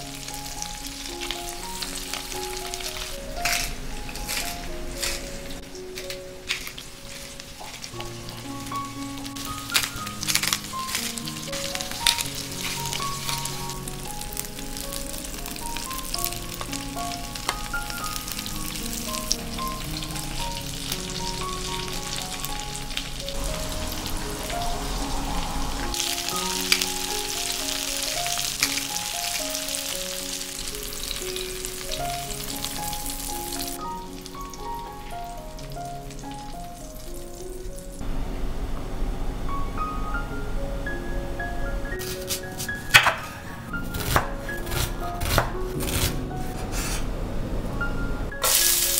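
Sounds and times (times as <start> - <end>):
food sizzling in oil: 0.0 - 38.0, 48.4 - 48.9
gentle background music: 0.0 - 48.9.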